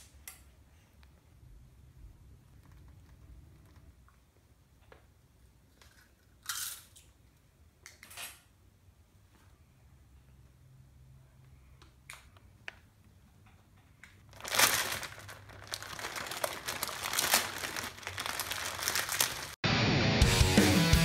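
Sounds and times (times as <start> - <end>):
chip bag crinkling: 14.3 - 19.6.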